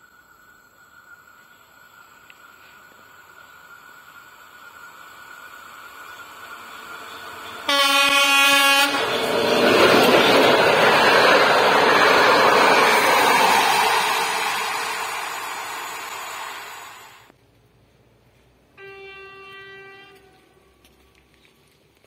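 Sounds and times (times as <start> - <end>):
diesel locomotive: 0.0 - 22.0
wheel-on-rail noise: 1.4 - 17.3
train horn blast: 7.6 - 9.1, 18.8 - 20.9.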